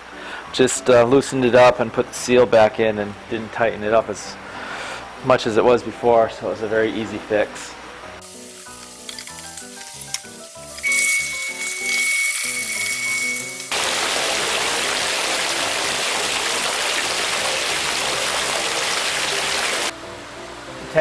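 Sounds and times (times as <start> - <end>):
background music plucked melody: 0.0 - 19.0, 19.7 - 21.0
thin steady whistle: 10.8 - 13.7
water pouring into fish tank: 13.7 - 19.9.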